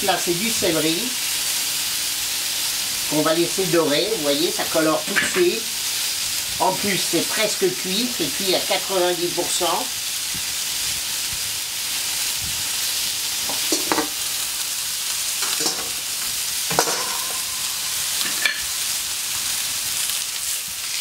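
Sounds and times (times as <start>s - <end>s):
food sizzling on metal griddle: 0.0s - 21.0s
metal lid clinks and knocks: 13.5s - 14.1s, 15.4s - 16.0s, 16.7s - 17.5s, 18.2s - 18.6s.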